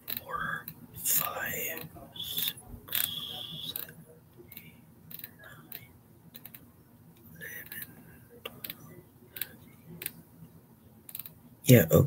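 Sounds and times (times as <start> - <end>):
faint clicks and ticks: 2.9 - 10.2, 11.0 - 11.4.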